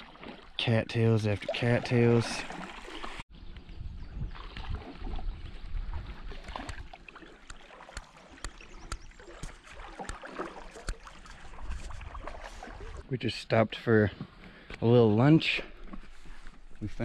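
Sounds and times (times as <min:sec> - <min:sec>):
paddle swishing through water: 0:00.0 - 0:13.1, 0:15.5 - 0:17.0
water dripping: 0:06.3 - 0:12.8.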